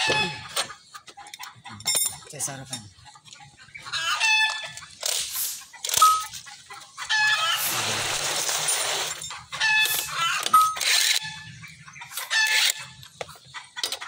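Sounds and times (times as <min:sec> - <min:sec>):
chickens clucking and squawking: 0:00.0 - 0:14.0
metal clinks: 0:01.8 - 0:02.9.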